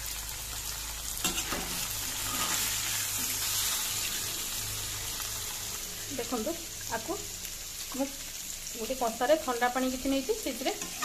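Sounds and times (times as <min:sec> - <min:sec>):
cheese sizzling in hot oil: 0:00.0 - 0:11.0
metal spoon scraping a pan: 0:01.2 - 0:04.3, 0:10.5 - 0:11.0.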